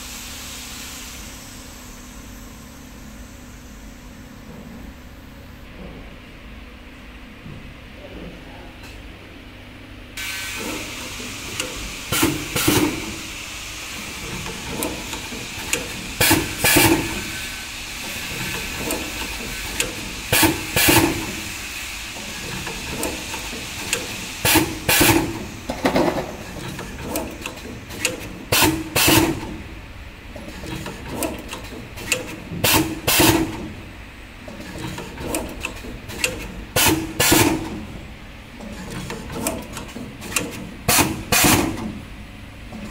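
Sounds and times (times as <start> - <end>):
machine whine and hiss: 0.0 - 7.4, 9.5 - 42.9
pneumatic clacks: 10.2 - 29.7, 30.3 - 42.0.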